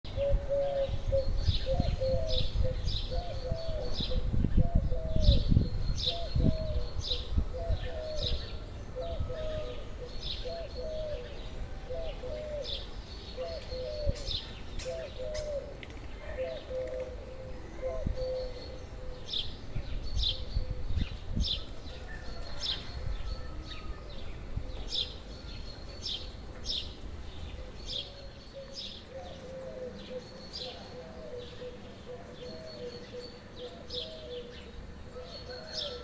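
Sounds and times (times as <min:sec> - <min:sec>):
bird cooing: 0:00.1 - 0:26.2, 0:27.5 - 0:36.0.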